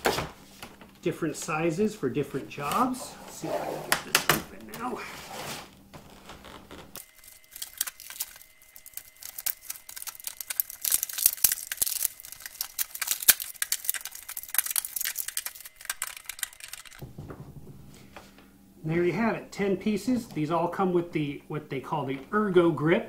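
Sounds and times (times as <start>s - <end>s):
plastic packaging crackling: 4.2s - 17.0s.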